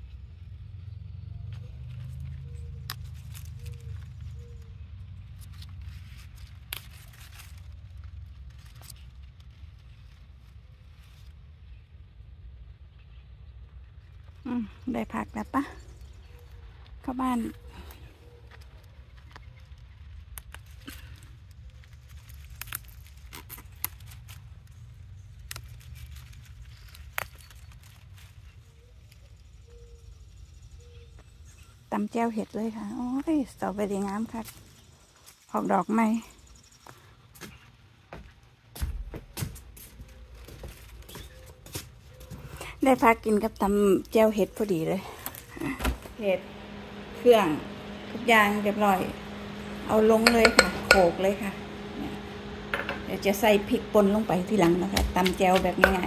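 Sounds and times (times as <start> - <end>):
leaves rustling: 1.6 - 11.7, 17.6 - 29.2, 44.5 - 50.1
low steady rumble: 43.4 - 56.0.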